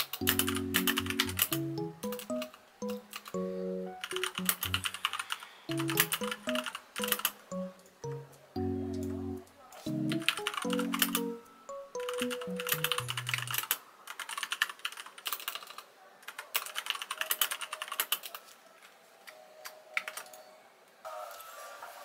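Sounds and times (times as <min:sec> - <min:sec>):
computer keyboard typing: 0:00.0 - 0:08.3, 0:09.9 - 0:18.4, 0:19.6 - 0:20.4.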